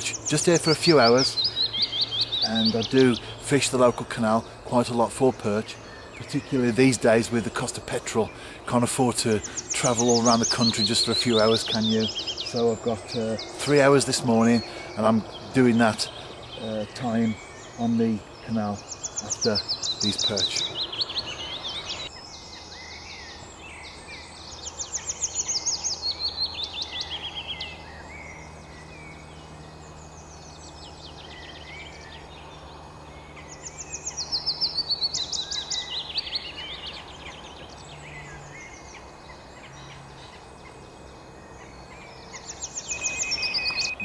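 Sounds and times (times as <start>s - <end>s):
bird chirps: 0.0s - 44.0s
songbird song cascading down: 0.0s - 44.0s.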